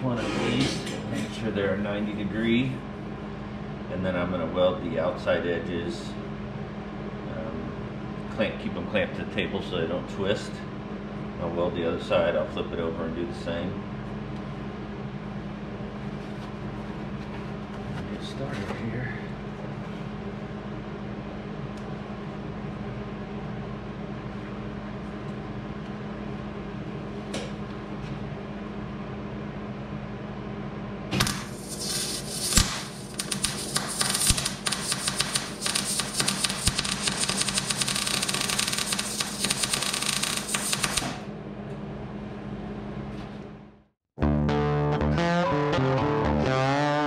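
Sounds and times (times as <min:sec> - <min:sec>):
steady hum: 0:00.0 - 0:47.0
arc welding crackling sizzle: 0:31.2 - 0:41.3.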